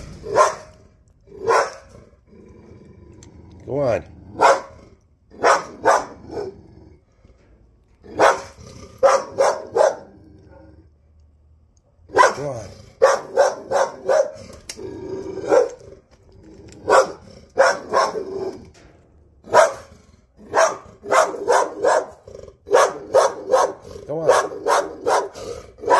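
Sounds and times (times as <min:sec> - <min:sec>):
dog barking aggressively: 0:00.0 - 0:02.0, 0:04.3 - 0:06.6, 0:08.0 - 0:10.6, 0:12.1 - 0:14.5, 0:15.4 - 0:15.9, 0:16.8 - 0:18.6, 0:19.4 - 0:25.9.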